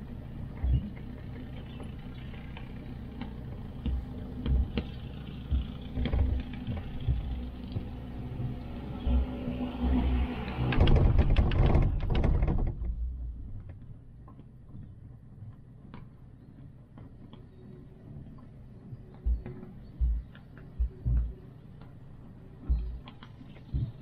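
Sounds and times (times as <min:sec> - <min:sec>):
rattling clatter of rollers: 0:00.0 - 0:09.2, 0:10.1 - 0:14.0
chairlift low rumble: 0:00.0 - 0:24.0.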